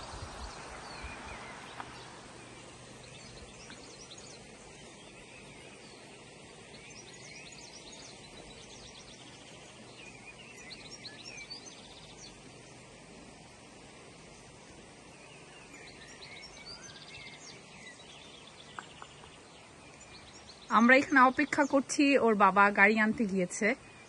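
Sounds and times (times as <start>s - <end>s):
rocky stream rushing: 0.0s - 3.0s
small birds chirping: 0.0s - 24.0s.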